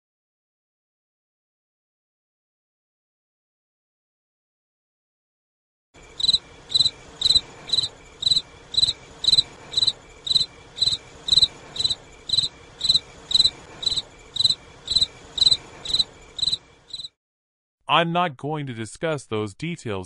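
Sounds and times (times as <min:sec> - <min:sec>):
cricket chirping: 0:06.0 - 0:17.2.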